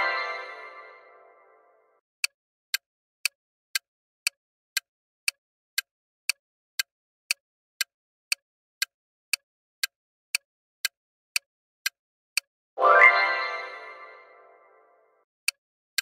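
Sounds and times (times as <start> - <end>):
clock ticking: 2.2 - 14.3.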